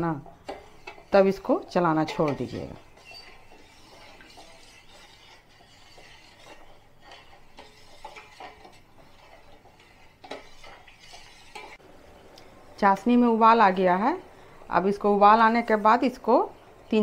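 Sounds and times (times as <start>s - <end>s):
spoon stirring in a pan: 0.0s - 12.8s.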